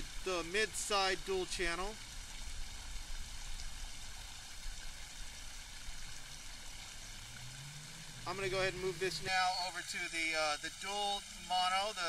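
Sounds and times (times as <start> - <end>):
water rushing over weir: 0.0 - 12.0.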